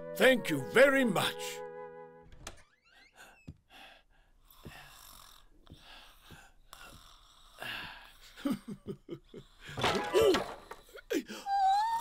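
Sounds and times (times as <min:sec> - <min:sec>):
breathy sounds: 0:02.8 - 0:12.0.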